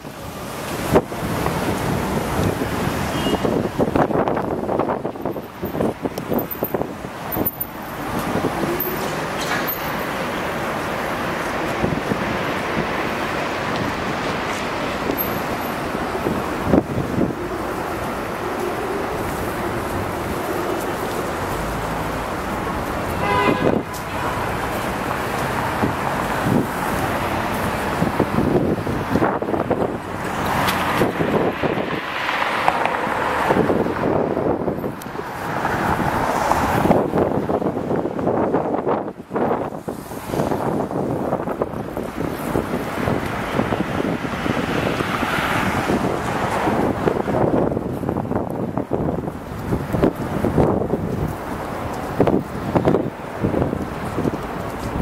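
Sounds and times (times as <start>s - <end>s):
street traffic passing: 0.0s - 55.0s
wind gusting on microphone: 0.0s - 55.0s.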